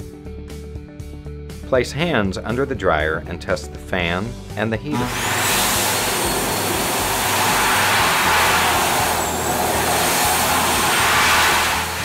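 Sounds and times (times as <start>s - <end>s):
hand dryer blowing air: 4.9s - 12.0s.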